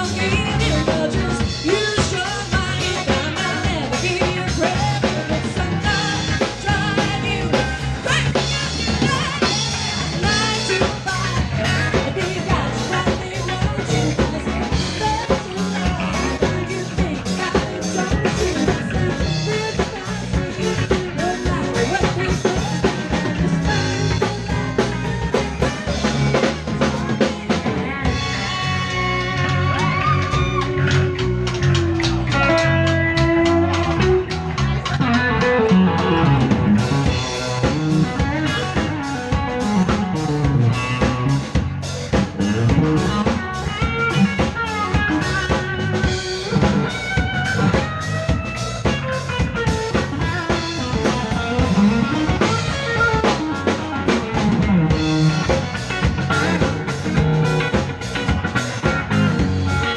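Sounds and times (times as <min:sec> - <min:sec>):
drum kit beat: 0:00.0 - 0:59.9
electric guitar solo: 0:27.0 - 0:41.8, 0:42.4 - 0:59.9.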